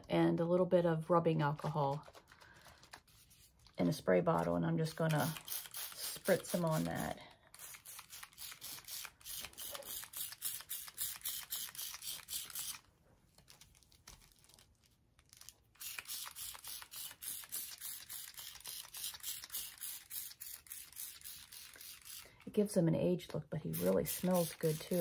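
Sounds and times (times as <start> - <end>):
spray bottle squirting: 5.1 - 12.8, 15.8 - 22.4, 23.7 - 25.0.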